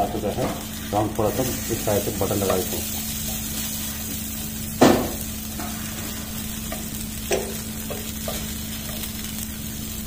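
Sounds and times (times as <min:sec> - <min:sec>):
kebabs sizzling on a pan: 0:00.0 - 0:10.0
metal skewers knocking on pan: 0:02.4 - 0:02.7, 0:04.8 - 0:05.8, 0:06.7 - 0:09.0.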